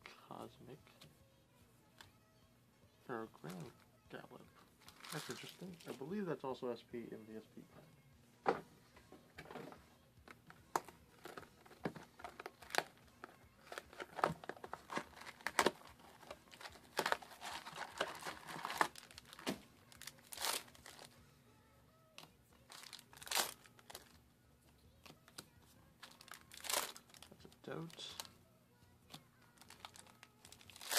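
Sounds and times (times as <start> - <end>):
foil packs tearing: 4.8 - 6.0, 13.6 - 21.1, 22.7 - 24.1, 26.1 - 28.2, 29.6 - 30.9
foil packs crinkling: 4.8 - 6.1, 10.8 - 21.2, 22.7 - 24.2, 26.0 - 28.3, 29.5 - 30.9.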